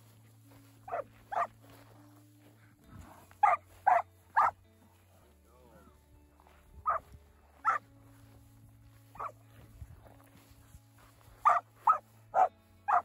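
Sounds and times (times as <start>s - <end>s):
dog barking: 0.9s - 1.5s, 3.4s - 4.6s, 6.8s - 7.0s, 7.6s - 7.8s, 9.2s - 9.4s, 11.4s - 13.0s.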